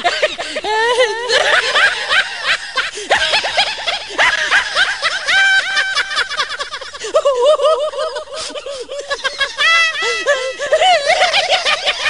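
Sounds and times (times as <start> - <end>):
high-pitched laughter: 0.0 - 12.0.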